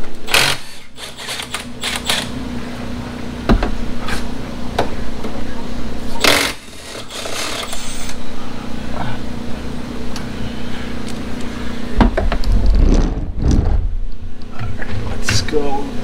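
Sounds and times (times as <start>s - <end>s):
steady background hum: 0.0s - 16.0s
camera handling rumble: 12.2s - 14.2s.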